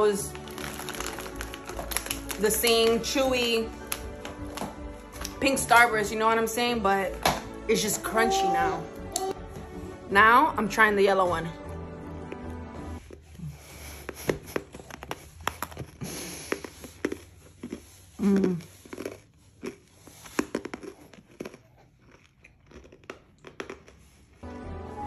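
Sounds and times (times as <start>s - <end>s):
candy crunching while chewed: 0.1s - 5.4s, 12.1s - 24.4s.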